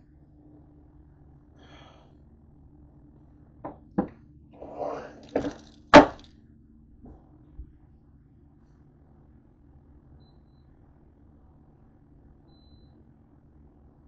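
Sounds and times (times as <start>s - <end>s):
faint low hum: 0.0s - 14.0s
kitchen items knocking and clattering: 5.2s - 6.2s.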